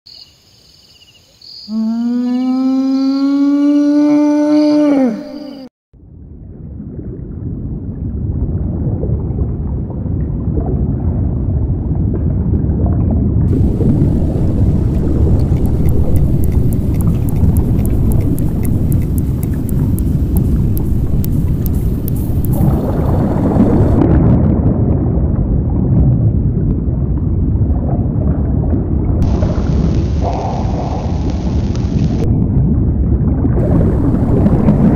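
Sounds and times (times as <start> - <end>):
falling pitched call: 1.7 - 5.7
low deep-water ambience: 1.8 - 34.9
deep underwater rumble: 6.0 - 34.9
faint ticks: 13.5 - 22.8.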